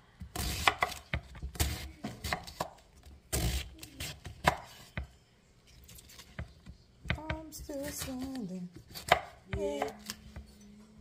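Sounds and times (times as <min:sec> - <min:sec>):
knife slicing cabbage: 0:00.3 - 0:04.9, 0:07.6 - 0:10.3.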